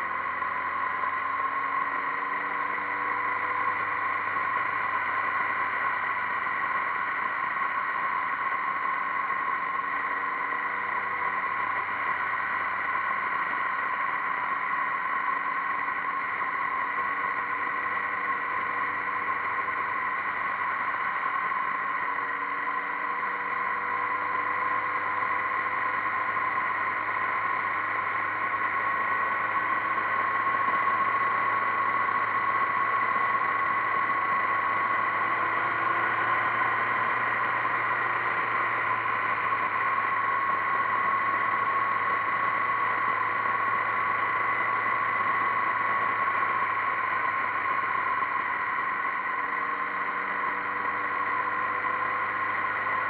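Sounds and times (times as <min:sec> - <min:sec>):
road noise: 0:00.0 - 0:53.0
motorcycle engine cruising: 0:15.2 - 0:53.0.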